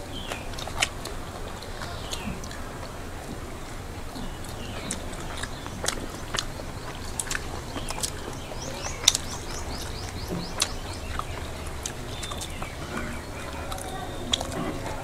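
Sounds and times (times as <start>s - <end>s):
mouth clicks and chewing: 0.0s - 15.0s
small bird chirps: 4.2s - 14.7s.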